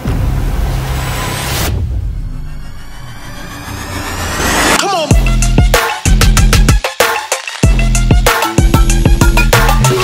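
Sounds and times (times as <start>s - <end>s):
rising noise sweep: 0.0s - 4.8s
heavy beat with bass kicks: 4.5s - 10.0s.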